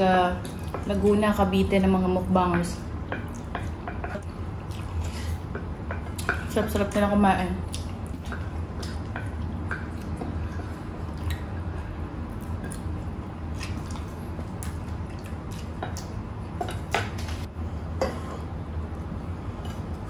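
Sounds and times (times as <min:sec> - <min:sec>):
steady low hum: 0:00.0 - 0:20.0
wet squishing of food eating: 0:03.1 - 0:06.6, 0:07.6 - 0:17.5.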